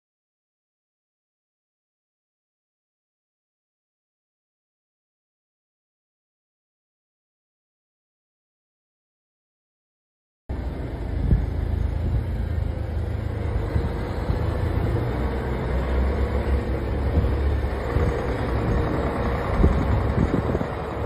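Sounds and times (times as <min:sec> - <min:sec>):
vehicle road rumble: 0:10.5 - 0:21.0.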